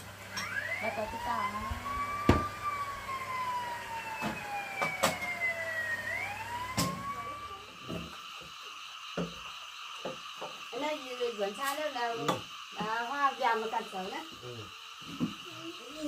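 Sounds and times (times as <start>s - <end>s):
siren-like wailing tone: 0.3s - 12.3s.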